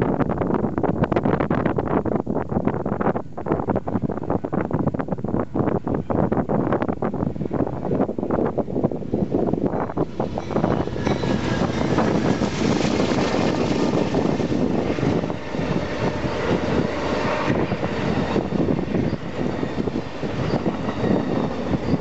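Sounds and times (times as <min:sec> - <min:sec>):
diesel locomotives passing: 0:07.2 - 0:22.0
train wheels on rails: 0:09.8 - 0:14.1.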